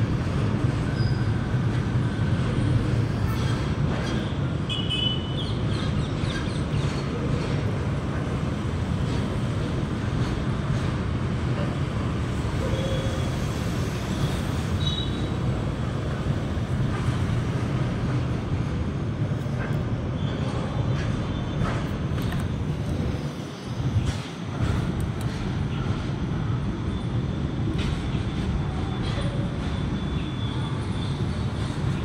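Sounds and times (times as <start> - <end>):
train wheels rumbling on rails: 0.0 - 32.0
high wheel squeaks: 0.9 - 1.5.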